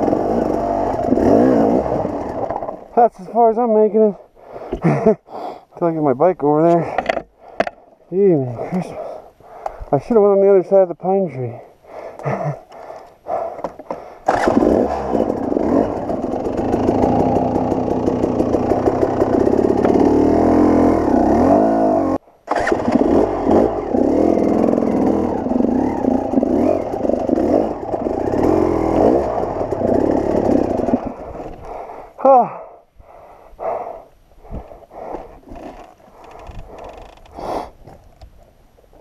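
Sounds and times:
dirt bike engine revving: 0.0 - 3.0, 14.3 - 31.7.

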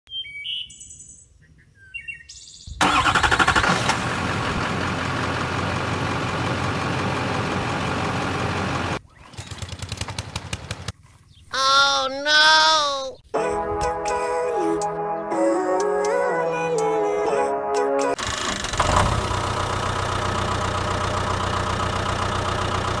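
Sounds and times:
soft bird-like chirps: 0.1 - 2.8
truck engine running: 2.8 - 10.9, 18.2 - 23.0.

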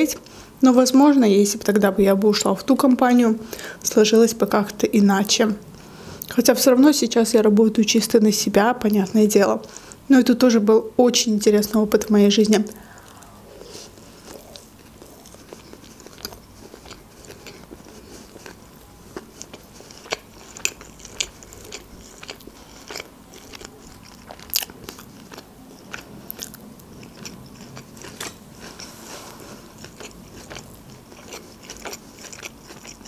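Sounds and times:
person chewing food: 12.7 - 33.0.

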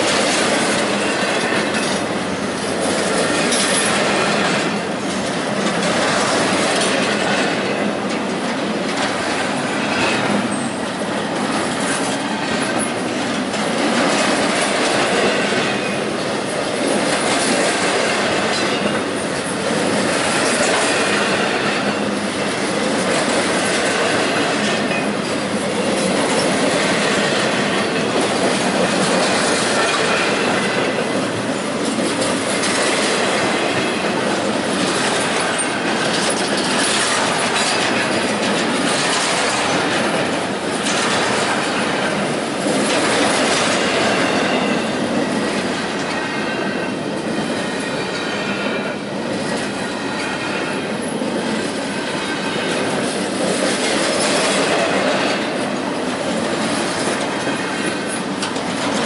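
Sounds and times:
steel wheels clattering on rails: 0.0 - 59.0.

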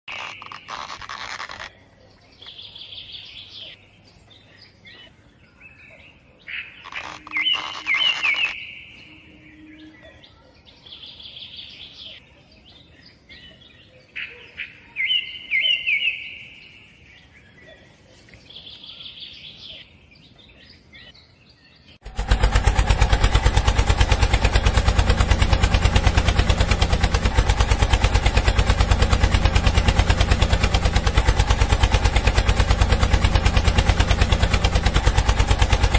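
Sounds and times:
birds chirping: 0.0 - 35.9
small motor chattering: 0.1 - 1.8, 6.8 - 8.6, 22.0 - 35.9.

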